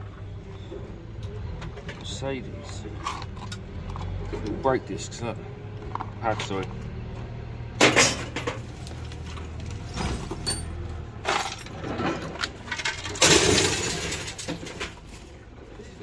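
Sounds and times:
metal crash: 7.8 - 8.7, 9.9 - 15.0
scrap metal clanking: 7.8 - 15.3.

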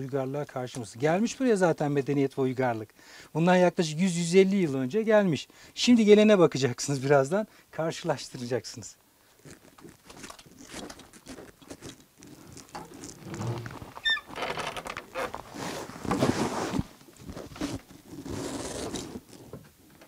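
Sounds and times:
clothes and backpack rustling: 9.2 - 19.6
short squeak: 13.3 - 15.3
wooden door handled: 13.4 - 15.3
footsteps and scuffing: 15.1 - 18.0.

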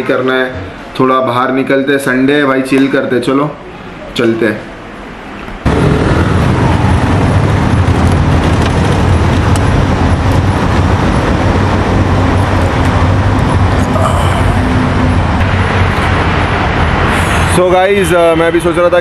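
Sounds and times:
road noise: 0.0 - 19.0
scooter engine drone: 5.6 - 17.9.

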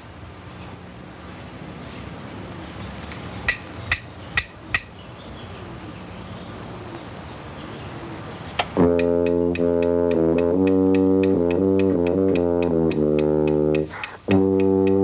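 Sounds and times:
steady low hum and hiss: 0.0 - 15.0
sharp clicks: 8.6 - 15.0.

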